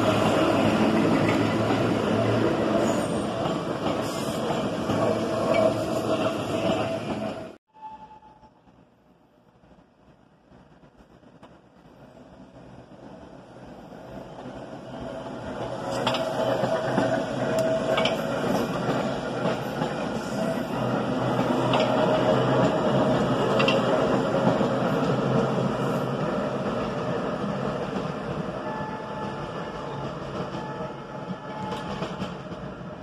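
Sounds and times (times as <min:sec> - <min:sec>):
subway train rumbling past: 0:00.0 - 0:33.0
sharp clicks of train: 0:09.6 - 0:12.6, 0:15.6 - 0:20.6, 0:21.3 - 0:25.5, 0:29.2 - 0:33.0.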